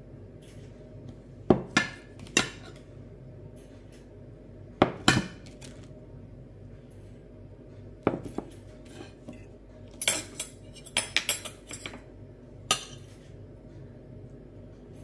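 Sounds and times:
fork clinking on glass plates: 10.0 - 12.0.

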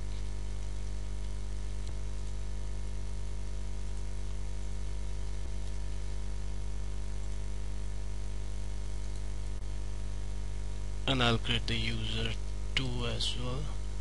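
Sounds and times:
electrical mains hum and hiss: 0.0 - 14.0
faint clicks: 9.0 - 9.3.

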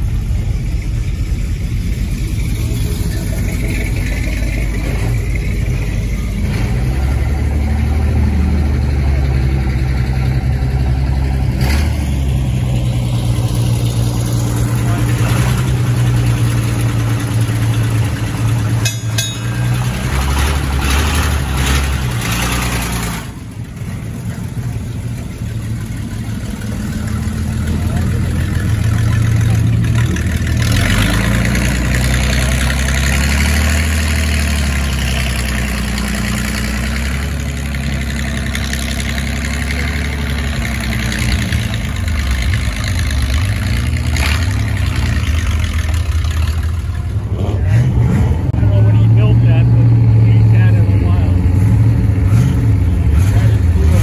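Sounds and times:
truck engine running at low speed: 0.0 - 54.0.

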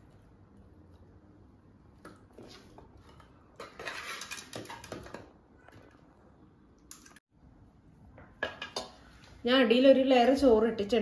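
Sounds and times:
spoon scraping a cooking pot: 3.0 - 4.8.

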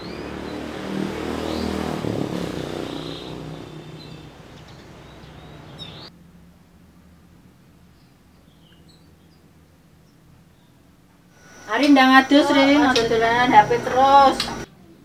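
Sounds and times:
vehicle engine passing: 0.0 - 7.9, 11.4 - 14.7.

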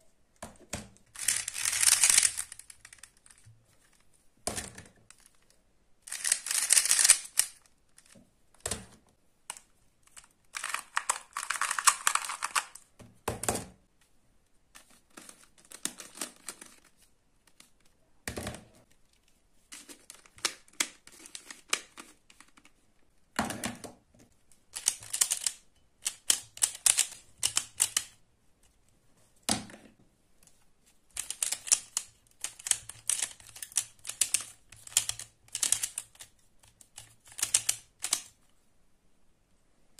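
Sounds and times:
rapid clicking of puzzle cube: 0.5 - 5.5, 6.1 - 12.9, 14.8 - 17.8, 19.8 - 22.8, 24.6 - 28.2, 31.1 - 38.4.

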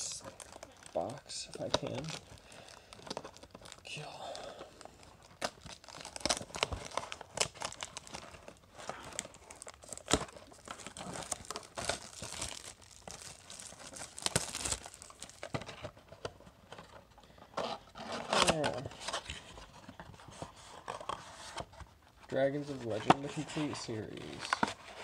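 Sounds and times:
plastic shrink-wrap crinkling: 0.0 - 16.3, 18.1 - 18.9.

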